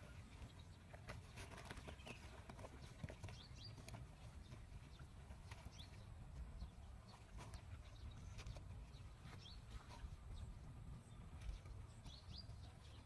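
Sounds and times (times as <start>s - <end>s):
paws scratching dry earth: 0.0s - 13.0s.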